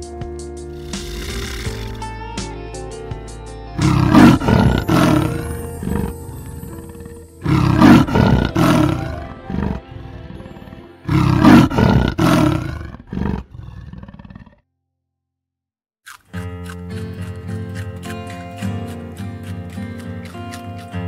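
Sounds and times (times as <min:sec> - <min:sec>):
soft background music: 0:00.0 - 0:12.8
large animal roaring: 0:00.8 - 0:02.0, 0:03.8 - 0:14.6.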